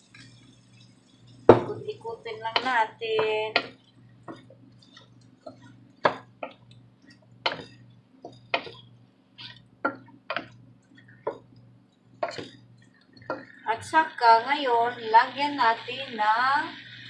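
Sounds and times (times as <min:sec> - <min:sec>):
low steady hum: 0:00.0 - 0:17.0
spatula scraping a cooking pot: 0:04.3 - 0:11.5, 0:12.2 - 0:12.7.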